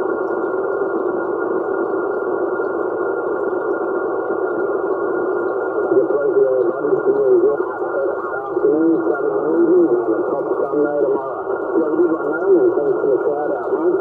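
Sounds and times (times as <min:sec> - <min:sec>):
radio static hiss: 0:00.0 - 0:14.0
garbled radio voice: 0:05.8 - 0:14.0.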